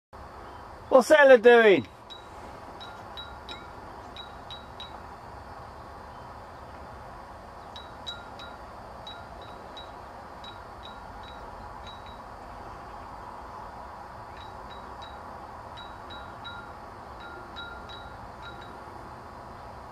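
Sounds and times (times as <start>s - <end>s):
outdoor hiss: 0.2s - 19.9s
metallic tinkling pings: 2.0s - 5.1s, 7.7s - 12.4s, 14.3s - 19.0s.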